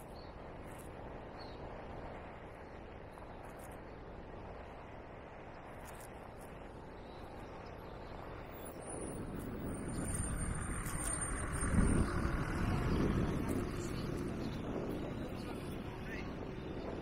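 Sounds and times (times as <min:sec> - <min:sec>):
vehicle passing: 0:09.0 - 0:17.0.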